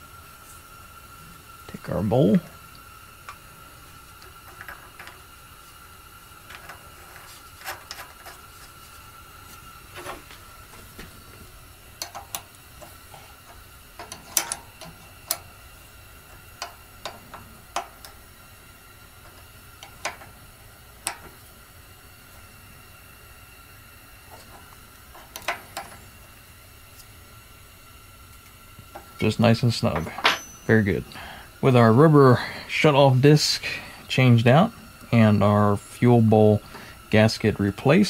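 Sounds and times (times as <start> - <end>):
wrench clicking on bolt: 14.0 - 15.5.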